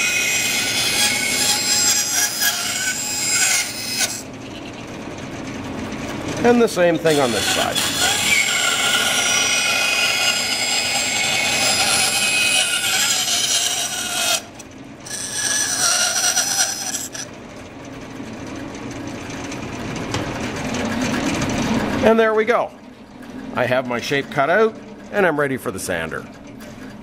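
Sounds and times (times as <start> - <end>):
bandsaw cutting wood: 0.0 - 4.3, 7.0 - 17.3
bandsaw running idle: 0.0 - 4.3, 6.4 - 17.3.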